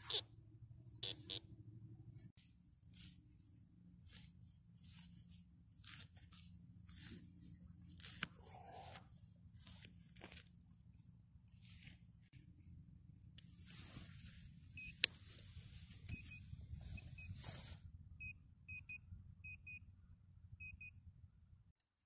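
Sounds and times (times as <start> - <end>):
hand digger scraping soil: 2.4 - 10.7.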